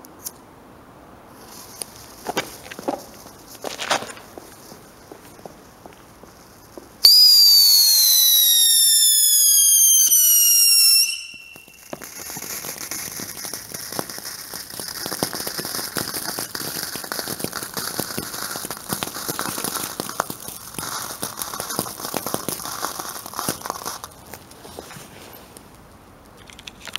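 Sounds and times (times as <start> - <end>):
fountain sparks crackling and hissing: 1.4 - 25.6
firework whistle falling in pitch: 7.0 - 12.1.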